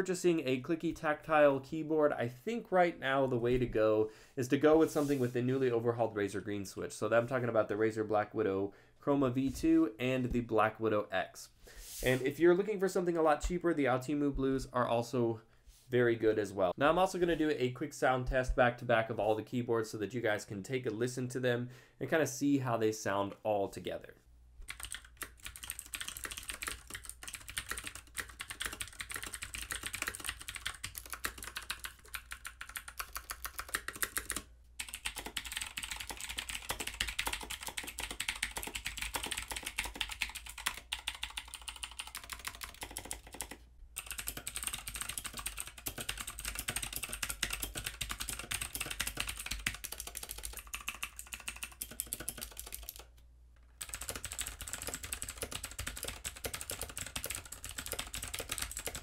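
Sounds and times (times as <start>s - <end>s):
mechanical keyboard typing: 24.7s - 53.1s, 53.8s - 59.0s.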